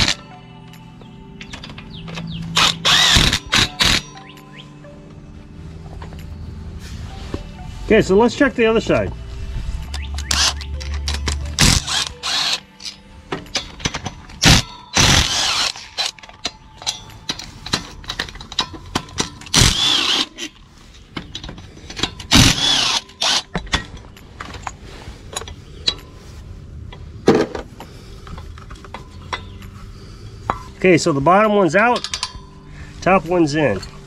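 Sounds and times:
bolts clicking and clattering: 0.0 - 4.4, 9.9 - 26.2, 26.9 - 29.8, 30.4 - 32.6
cordless drill spinning: 2.6 - 4.0, 11.6 - 12.6, 15.0 - 16.1, 19.6 - 20.3, 22.3 - 23.4.

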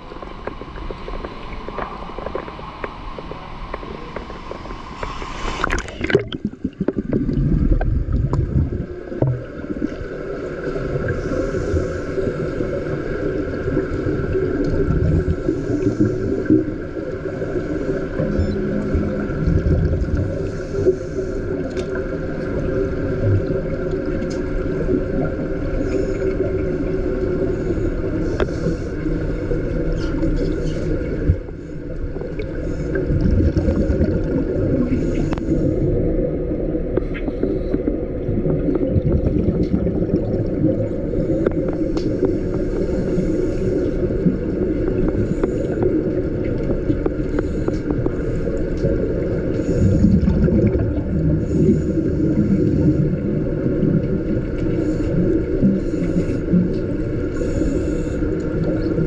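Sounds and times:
steady low underwater rumble: 0.0 - 59.0
diver exhalation bubbling: 5.6 - 9.5, 50.0 - 51.6.

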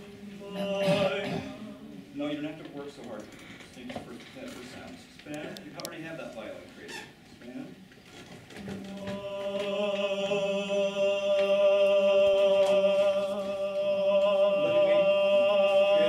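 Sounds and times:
man singing a long note: 0.3 - 1.7, 8.8 - 16.0.

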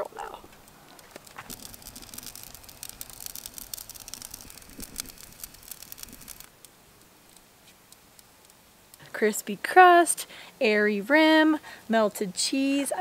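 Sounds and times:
pizza crackling and sizzling: 0.0 - 10.0
faint steady hiss: 0.0 - 13.0.

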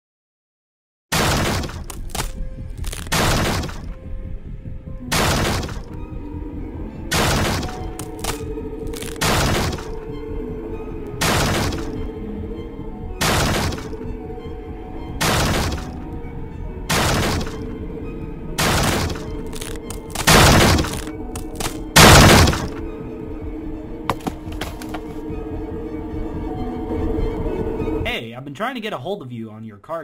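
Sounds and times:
eerie background music: 1.1 - 30.0
axe striking a wooden door: 1.2 - 2.0.

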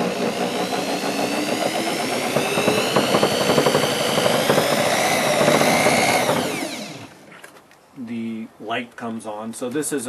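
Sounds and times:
electric drill motor whine: 0.0 - 7.3.

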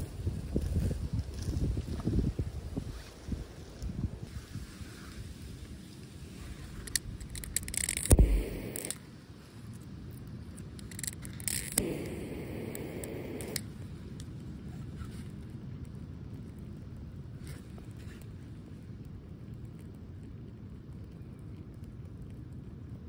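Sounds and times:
lighter hiss: 6.6 - 9.0, 10.8 - 14.3
sharp knock: 8.1 - 8.8.

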